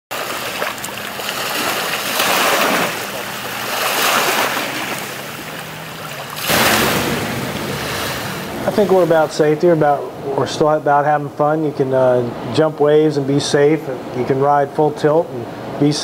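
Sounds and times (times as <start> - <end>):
jet ski running at speed: 0.1 - 9.1
rush of spray: 0.1 - 9.4
waves washing in at shoreline: 0.1 - 9.8.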